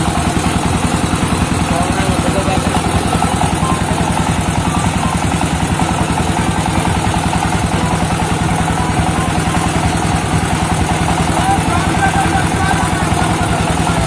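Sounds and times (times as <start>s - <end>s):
single-cylinder diesel engine running: 0.0s - 14.0s.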